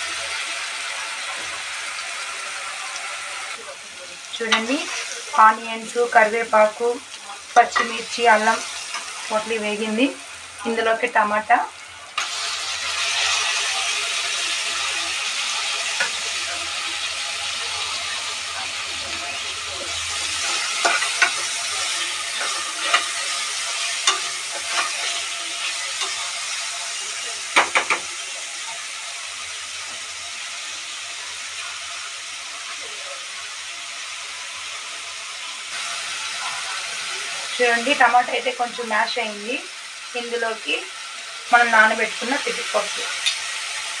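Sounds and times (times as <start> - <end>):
tomatoes sizzling in hot oil: 0.0 - 44.0
spoon knocking and scraping pot: 27.6 - 28.1.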